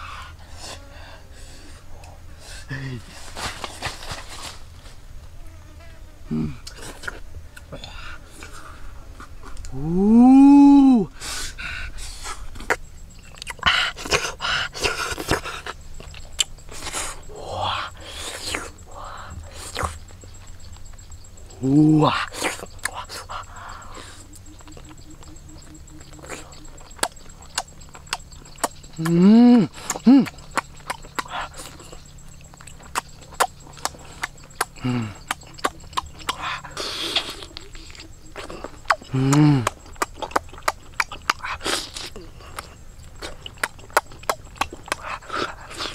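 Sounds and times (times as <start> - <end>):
person humming mm: 6.3 - 6.8, 9.7 - 11.1, 29.0 - 30.4, 39.1 - 39.8
breathy panting exhalations: 11.1 - 12.6
wet mouth smacks while chewing: 12.6 - 14.2, 29.8 - 45.9.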